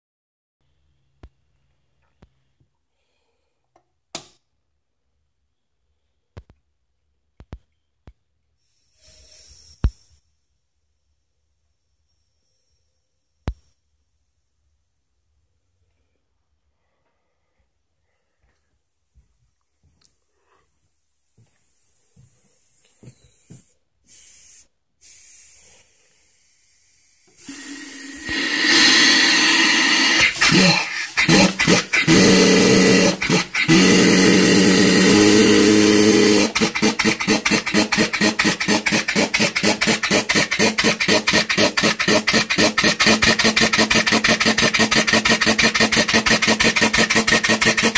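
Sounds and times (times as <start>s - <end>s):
compressed air hissing: 8.6s - 10.3s, 21.7s - 47.9s
engine puffs: 21.7s - 47.9s.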